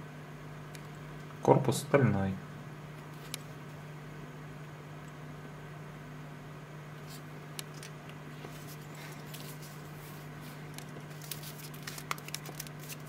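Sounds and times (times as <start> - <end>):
steady low hum: 0.0 - 13.0
fingers rustling leather strap: 7.8 - 13.0.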